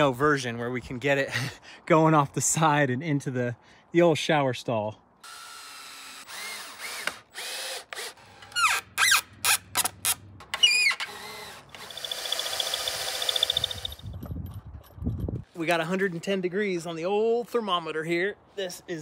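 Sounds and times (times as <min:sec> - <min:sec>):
cordless drill driving screws: 0:05.2 - 0:09.6, 0:10.6 - 0:14.0.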